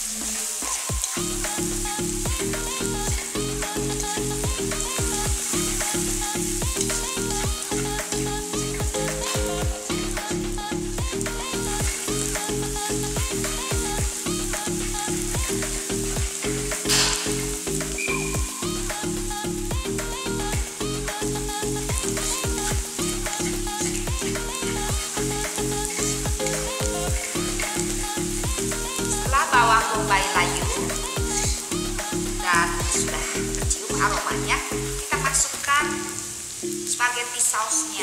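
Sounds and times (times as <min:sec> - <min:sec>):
background music with bass line: 0:00.0 - 0:36.0
onions sizzling in oil: 0:00.0 - 0:38.0
spatula scraping wok: 0:22.1 - 0:29.2.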